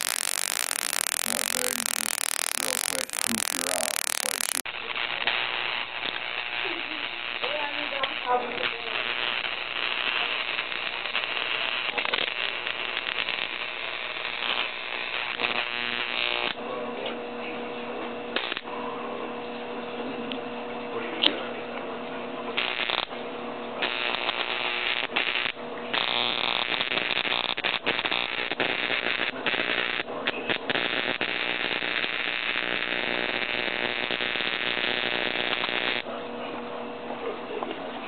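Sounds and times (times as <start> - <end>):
bug zapper crackling buzz: 0.0 - 4.6
electrical hum of lamp: 0.0 - 38.0.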